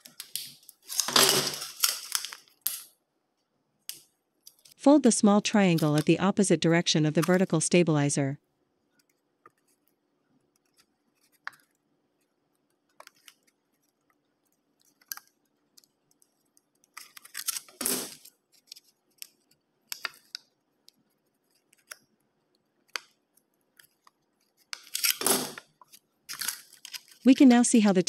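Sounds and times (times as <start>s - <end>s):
thin metal sheet crinkling: 0.0s - 2.9s.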